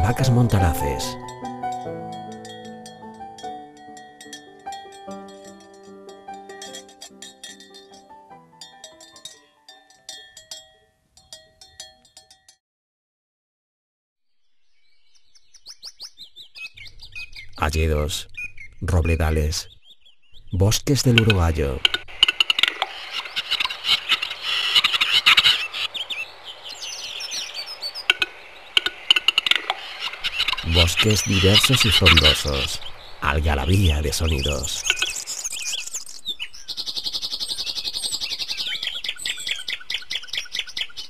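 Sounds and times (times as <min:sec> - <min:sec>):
cowbells clanking: 0:00.0 - 0:12.6, 0:21.0 - 0:22.2, 0:30.2 - 0:35.2
whistled bird song: 0:14.3 - 0:17.6, 0:23.0 - 0:28.1, 0:34.3 - 0:41.0
bird clicks and chirps: 0:21.1 - 0:33.0, 0:34.3 - 0:41.0.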